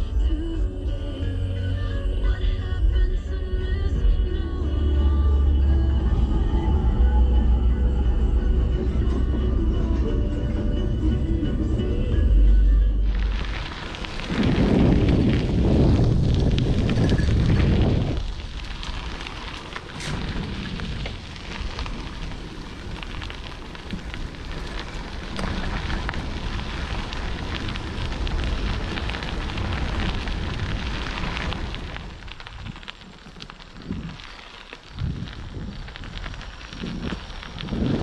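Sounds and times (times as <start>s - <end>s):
bicycle tyres crunching gravel: 0.0s - 38.0s
wind buffeting microphone: 13.1s - 38.0s.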